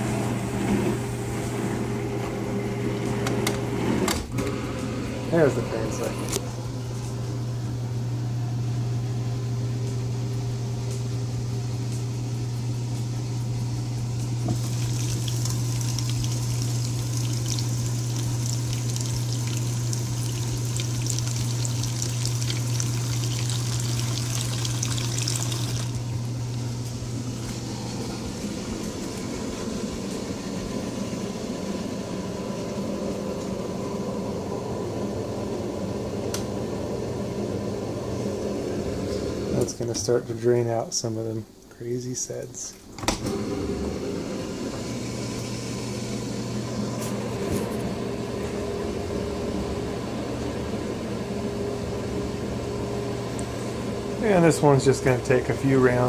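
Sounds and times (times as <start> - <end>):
dishwasher drain pump humming: 0.0 - 56.0
water splashing into sink: 14.4 - 26.0.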